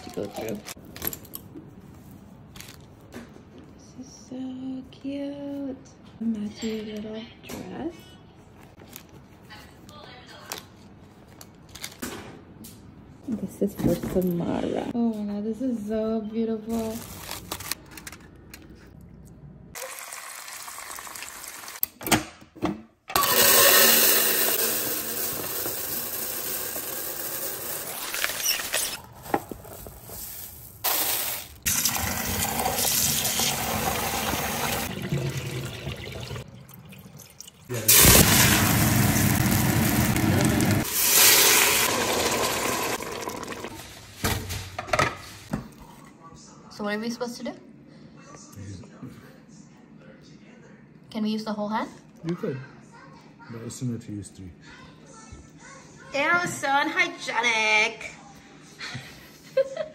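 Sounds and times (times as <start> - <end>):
tap water running into bowl: 31.8 - 37.7.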